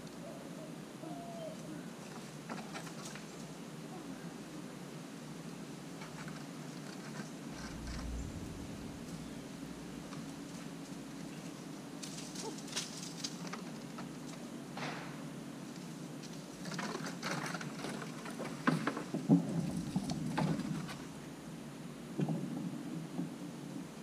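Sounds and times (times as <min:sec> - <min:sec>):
steady low hum: 0:07.4 - 0:12.1, 0:19.6 - 0:22.2.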